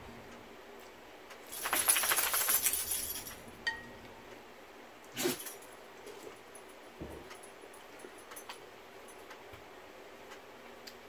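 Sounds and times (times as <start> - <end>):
small hard pieces jingling: 1.5 - 3.4.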